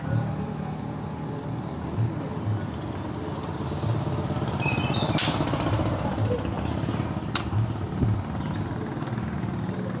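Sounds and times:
motorcycle engine running: 2.6s - 10.0s.

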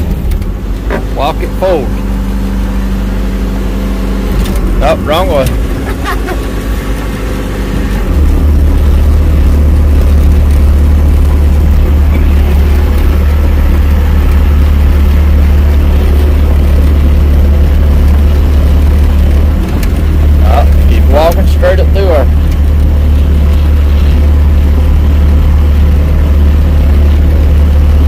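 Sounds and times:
diesel engine rumbling: 0.0s - 28.0s.

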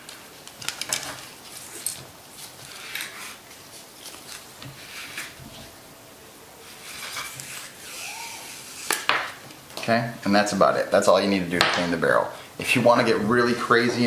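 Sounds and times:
rope rubbing through rifle barrel: 6.6s - 9.1s.

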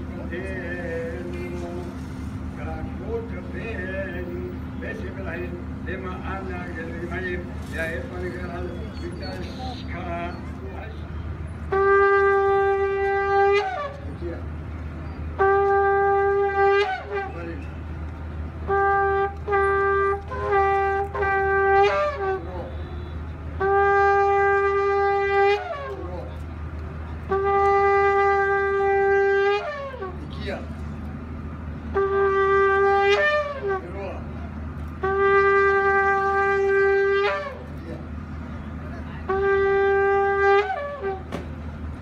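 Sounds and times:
shofar blasts: 11.6s - 14.3s, 15.1s - 17.8s, 18.6s - 26.4s, 27.2s - 30.8s, 31.9s - 34.1s, 34.9s - 37.9s, 39.2s - 41.9s.

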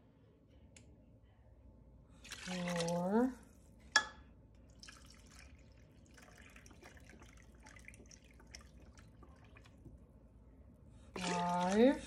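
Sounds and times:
broth trickling and dripping: 2.2s - 3.4s, 4.6s - 10.1s, 11.2s - 12.0s
small splashes: 2.2s - 3.5s, 4.7s - 10.0s, 11.2s - 12.0s.

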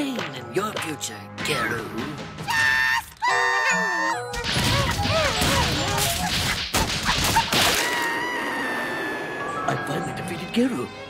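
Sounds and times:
music: 0.0s - 7.4s, 8.2s - 11.0s
cartoon crashes and whacks: 4.4s - 8.1s.

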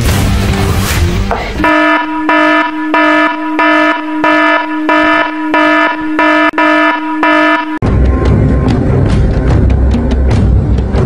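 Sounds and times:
pulsing electronic alarm buzz: 1.6s - 7.8s.

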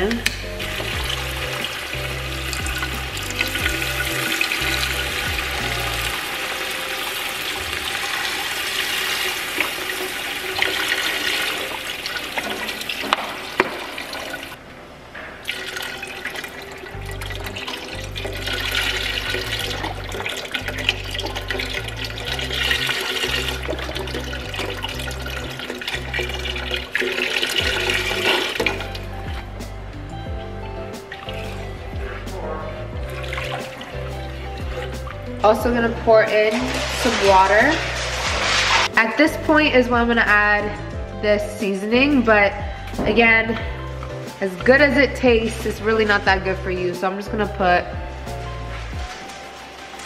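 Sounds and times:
background music: 0.0s - 50.0s
broth pouring and splashing into pot: 0.4s - 14.6s, 15.4s - 29.5s, 33.0s - 39.0s.

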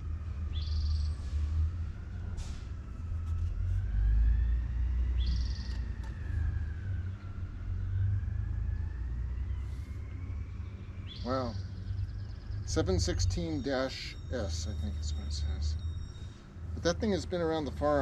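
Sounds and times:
faint wavering whine: 0.0s - 18.0s
bird chirp: 0.5s - 1.2s, 5.0s - 6.2s, 9.4s - 16.5s.

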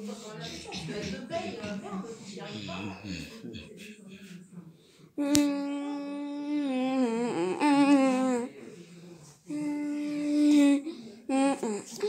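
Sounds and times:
person humming long notes: 2.4s - 3.8s.

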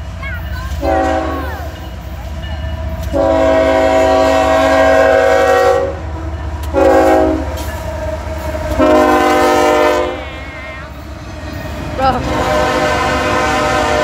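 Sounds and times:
diesel locomotives rumbling: 0.0s - 14.0s
locomotive air horn blasts: 0.8s - 1.4s, 3.1s - 6.1s, 6.7s - 7.6s, 8.5s - 10.6s, 12.2s - 14.0s.

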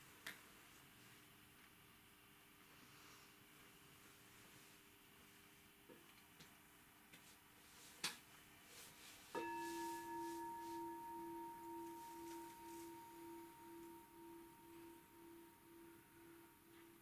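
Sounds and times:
meditation bowl ringing: 9.4s - 17.0s.

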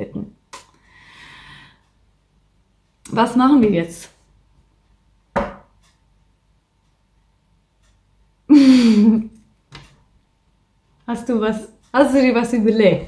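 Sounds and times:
person breathing: 0.8s - 2.0s
person sighing: 8.5s - 9.2s.

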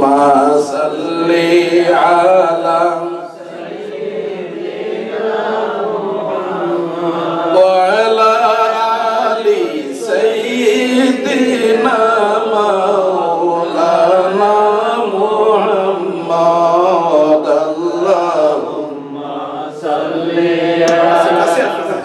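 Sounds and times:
men chanting: 0.0s - 22.0s.

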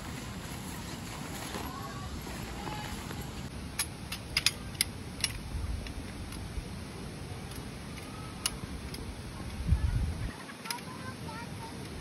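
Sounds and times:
steady low rumble: 0.0s - 7.9s.

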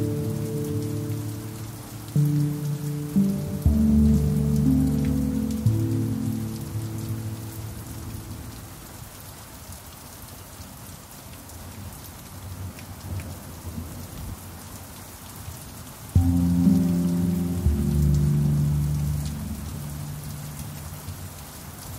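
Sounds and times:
steady rain: 0.0s - 21.9s
pan drum notes: 16.2s - 19.8s.

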